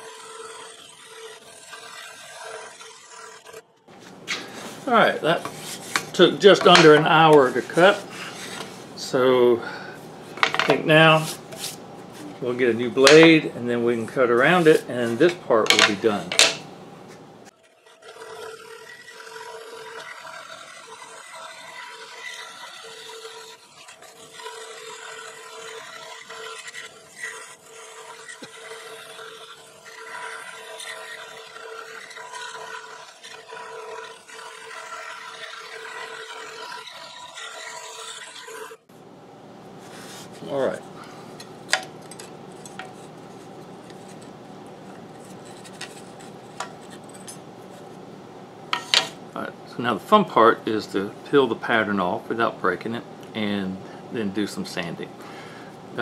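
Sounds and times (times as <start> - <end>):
wood pieces scraping on metal table: 0.0 - 8.9, 10.3 - 12.4, 14.4 - 16.7, 39.8 - 47.9, 48.7 - 49.2
scroll saw cutting wood: 0.0 - 9.5, 10.3 - 16.6, 17.5 - 38.9, 39.9 - 48.0.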